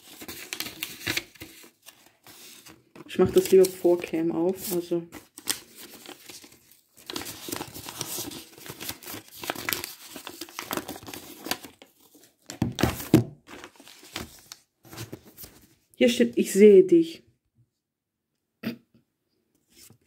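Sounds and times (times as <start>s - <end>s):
paper crinkling and rustling: 0.0s - 15.9s.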